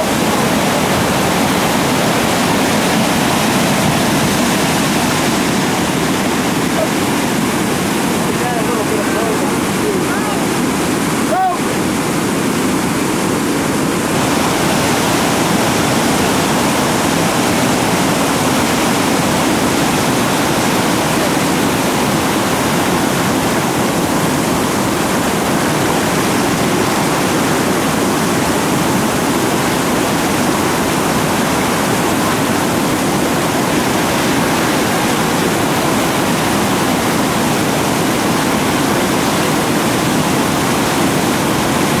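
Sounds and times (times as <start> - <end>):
whitewater rapid rushing: 0.0 - 42.0.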